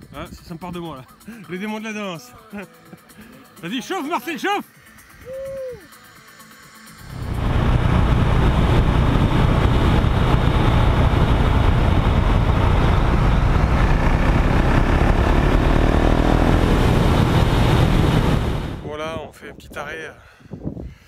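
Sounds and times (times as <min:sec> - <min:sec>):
motorcycle engine running: 0:07.0 - 0:18.9
heavy wind noise: 0:07.0 - 0:21.0.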